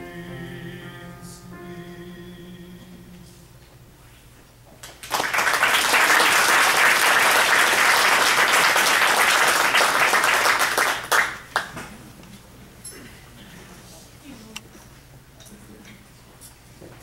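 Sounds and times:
audience applauding: 4.8 - 11.8.

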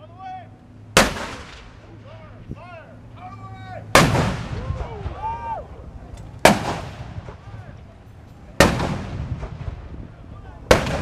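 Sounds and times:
tank gun blast echoing: 0.9 - 1.9, 3.9 - 5.2, 6.4 - 7.6, 8.6 - 10.0, 10.7 - 11.0.

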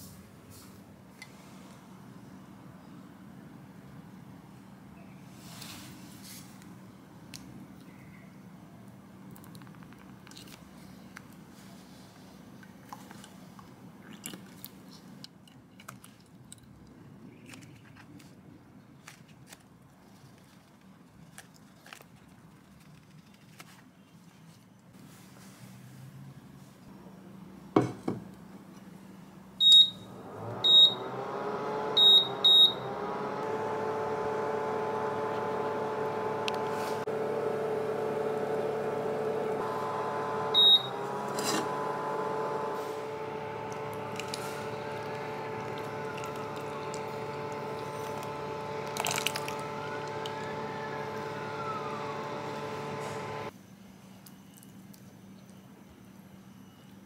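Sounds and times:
hob electrical whine and hum: 26.9 - 57.0
touch control beeps: 29.6 - 30.0, 30.6 - 31.0, 32.0 - 32.8, 40.6 - 41.0.

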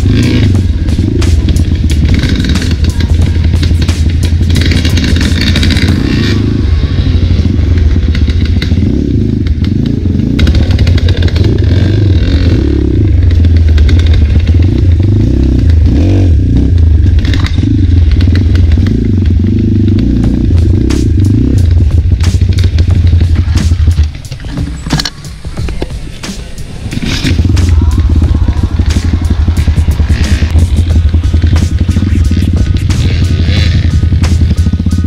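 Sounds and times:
dirt bike engine running: 0.0 - 35.0.

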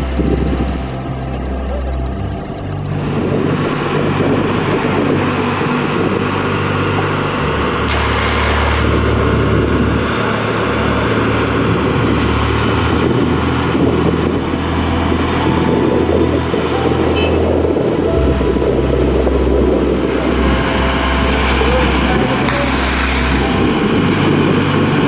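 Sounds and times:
crane diesel engine running: 0.0 - 25.0.

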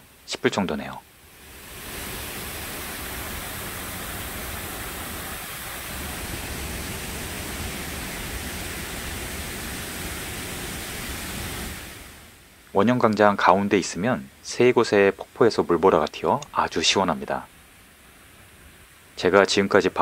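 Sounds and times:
waterfall pouring into pool: 1.2 - 12.4.

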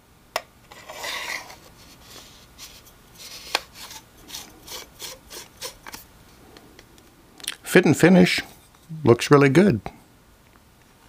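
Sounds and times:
plastic scrape: 0.7 - 6.1
rasping twists of screw threads: 0.7 - 6.1.

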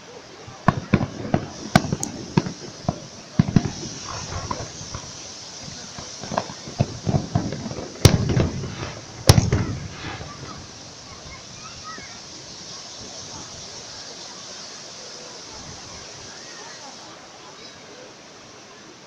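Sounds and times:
fireworks bursts and bangs: 0.4 - 14.1.

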